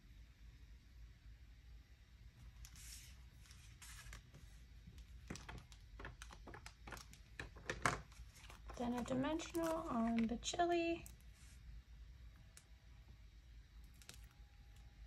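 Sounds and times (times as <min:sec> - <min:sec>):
faint room hiss: 0:00.0 - 0:15.0
pens and paper rustling: 0:02.6 - 0:11.6.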